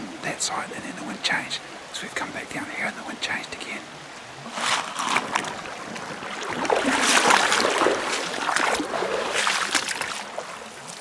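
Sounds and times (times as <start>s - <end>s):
boots splashing through water: 4.5s - 11.0s.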